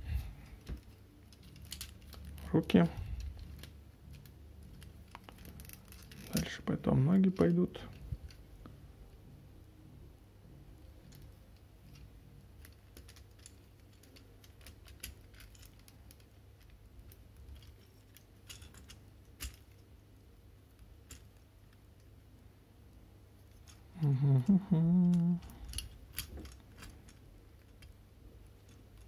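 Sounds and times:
plastic parts clicking: 0.5 - 2.5, 3.1 - 6.6, 25.0 - 29.0.

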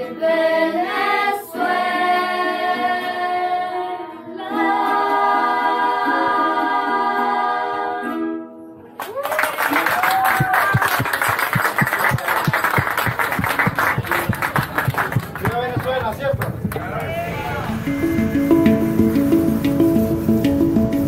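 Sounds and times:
children's choir singing: 0.0 - 8.4
rapid sharp clicks or knocks: 10.4 - 16.8.

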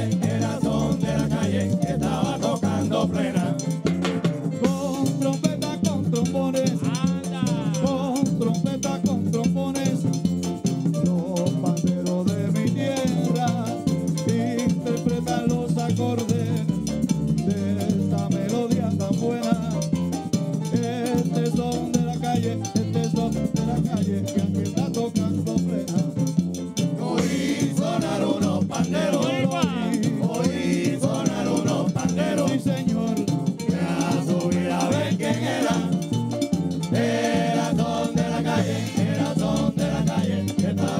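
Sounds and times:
group singing: 0.0 - 4.0, 12.6 - 16.6, 17.5 - 19.6, 26.9 - 40.9
frame drums: 0.0 - 40.9
upright bass: 0.0 - 40.9.

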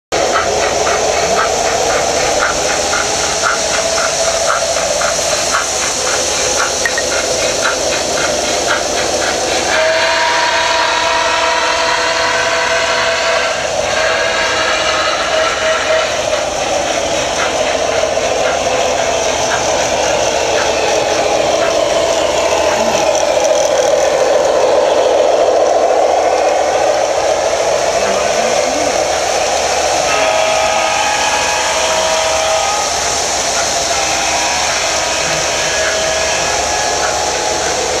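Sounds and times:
model train wheels rumbling on rails: 0.1 - 38.0
short steady tones: 6.8 - 7.4.

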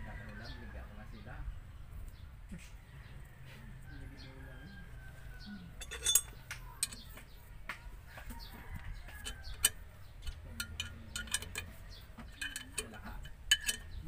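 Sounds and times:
metal bolts clicking: 5.8 - 7.2, 9.1 - 14.0.

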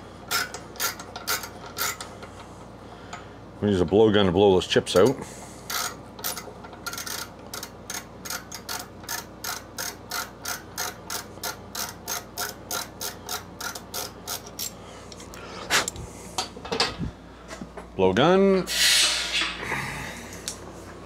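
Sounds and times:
ratcheting tap wrench clicking: 5.7 - 14.8.

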